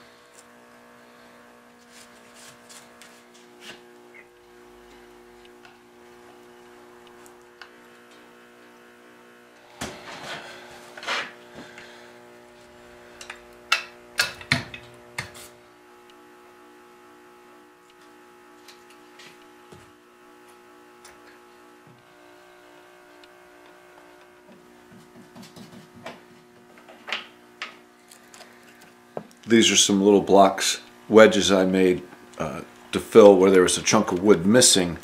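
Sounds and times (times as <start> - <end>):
steady low hum: 0.0 - 35.0
wood rubbing and scraping: 9.7 - 11.7.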